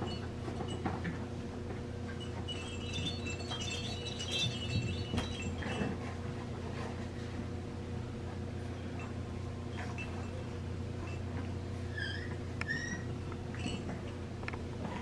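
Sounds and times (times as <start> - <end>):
steady low hum: 0.0 - 15.0
high chime-like ringing: 2.2 - 5.9.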